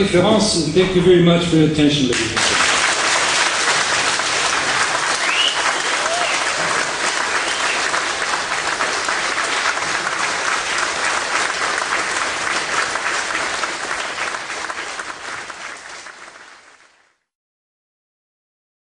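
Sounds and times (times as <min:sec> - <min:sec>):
audience applauding: 0:02.1 - 0:17.2.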